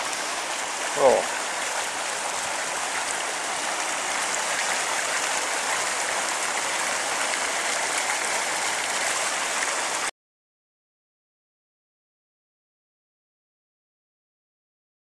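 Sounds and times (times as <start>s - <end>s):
waterfall rushing over weir: 0.0s - 10.1s.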